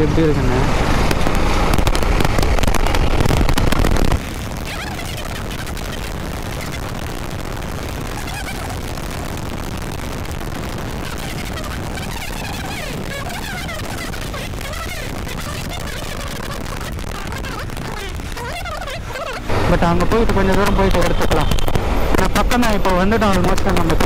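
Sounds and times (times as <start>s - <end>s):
motorcycle engine: 0.0s - 18.3s
wind rumble: 0.0s - 24.0s.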